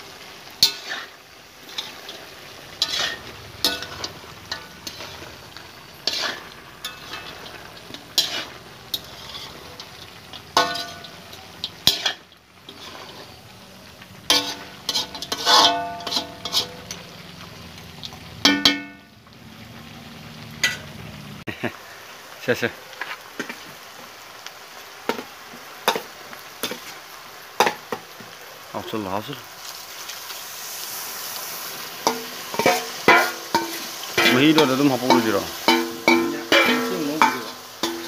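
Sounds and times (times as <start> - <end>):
beef sizzling in a wok: 0.0 - 38.0
spatula scraping a wok: 0.2 - 19.1, 25.1 - 27.0, 30.6 - 38.0.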